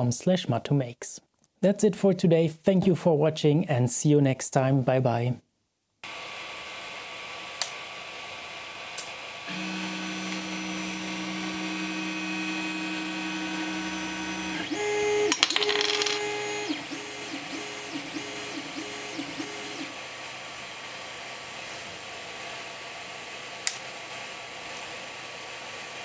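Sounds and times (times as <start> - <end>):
stepper motors whining: 9.4 - 20.8.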